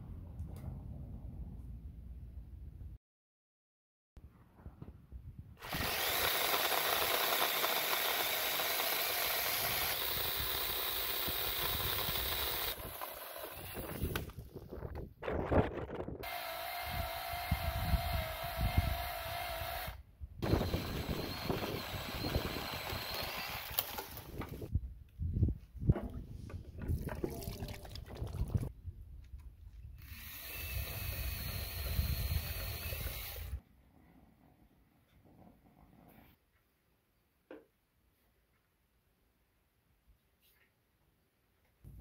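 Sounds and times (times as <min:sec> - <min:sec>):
small motor running: 0:05.6 - 0:14.2, 0:16.2 - 0:24.3, 0:30.0 - 0:33.6.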